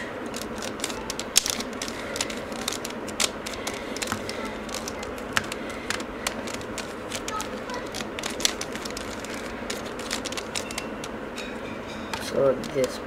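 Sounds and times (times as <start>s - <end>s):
puzzle cube clicking: 0.3s - 11.2s.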